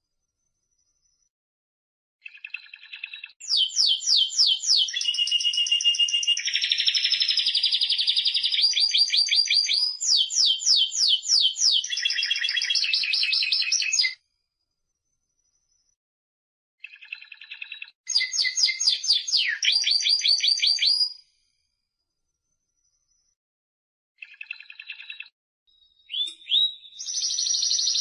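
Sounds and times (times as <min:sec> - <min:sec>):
canary singing trills: 0:02.2 - 0:14.2, 0:16.8 - 0:21.2, 0:24.2 - 0:28.0.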